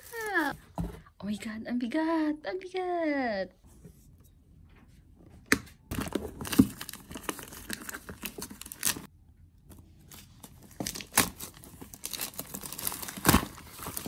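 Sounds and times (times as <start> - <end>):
plastic wrap tearing and crinkling: 5.9 - 9.1, 10.1 - 14.0.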